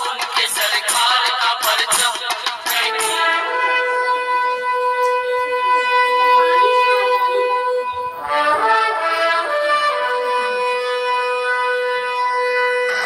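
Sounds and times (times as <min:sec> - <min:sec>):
instrumental melody: 0:02.2 - 0:13.0
steady held note: 0:03.5 - 0:11.2.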